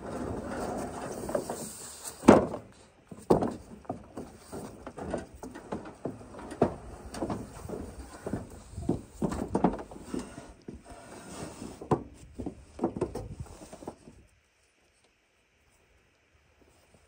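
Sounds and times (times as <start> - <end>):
knocks on wooden boards: 3.2 - 4.7.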